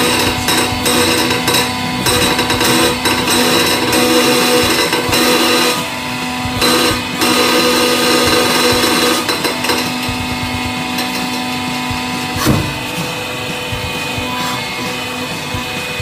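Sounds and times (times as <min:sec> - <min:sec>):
falling creak: 0:00.0 - 0:05.8
hydraulic pump hum: 0:00.0 - 0:16.0.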